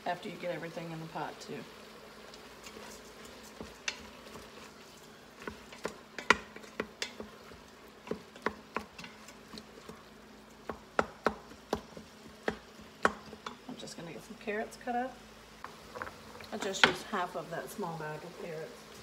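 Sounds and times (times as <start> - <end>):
faint steady hum: 0.0 - 19.0
utensil scraping metal pot: 2.4 - 10.0.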